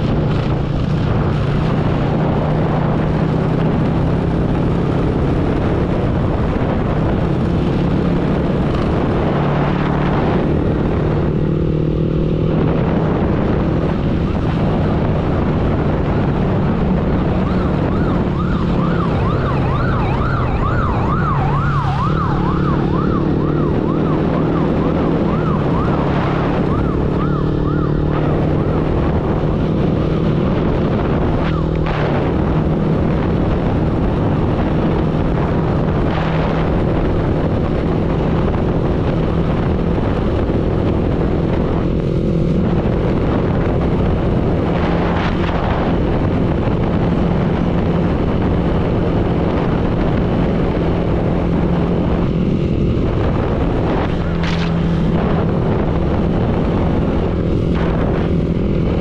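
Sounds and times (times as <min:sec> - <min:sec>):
road noise: 0:00.0 - 0:59.0
emergency siren wailing: 0:14.6 - 0:59.0.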